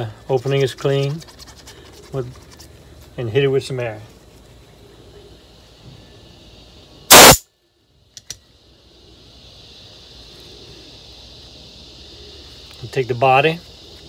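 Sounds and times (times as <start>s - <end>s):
compressed air blast: 7.1s - 7.4s.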